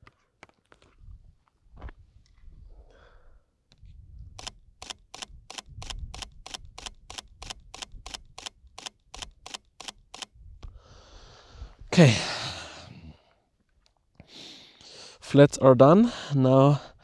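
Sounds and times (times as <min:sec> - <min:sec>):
camera shutter clicking: 0:04.4 - 0:10.3.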